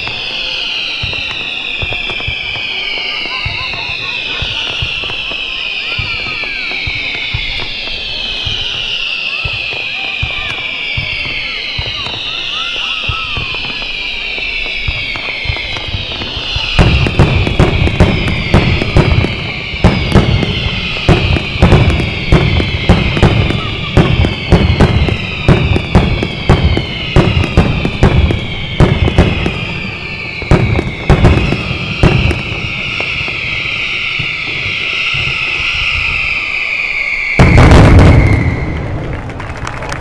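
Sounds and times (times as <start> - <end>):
fireworks bangs: 0.0 - 40.0
fireworks whistling: 0.0 - 40.0.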